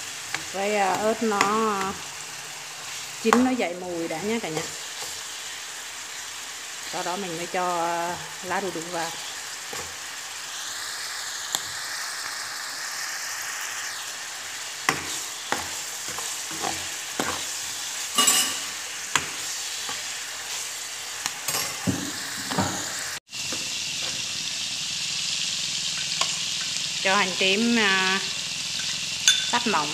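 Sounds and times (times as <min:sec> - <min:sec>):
food sizzling in hot oil: 0:00.0 - 0:29.9
metal ladle scraping a pan: 0:14.9 - 0:20.7.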